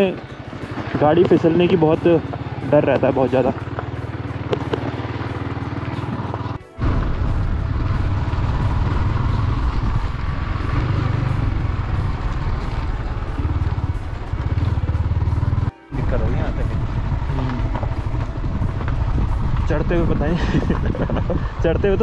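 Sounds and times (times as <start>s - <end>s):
motorcycle engine pulling uphill: 0.0s - 22.0s.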